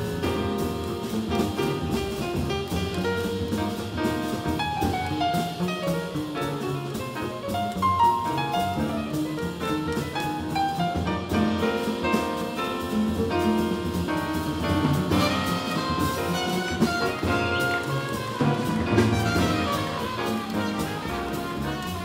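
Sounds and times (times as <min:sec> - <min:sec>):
drum kit: 0:00.0 - 0:22.0
piano: 0:00.0 - 0:22.0
plucked double bass: 0:00.0 - 0:22.0
trumpet: 0:08.2 - 0:22.0.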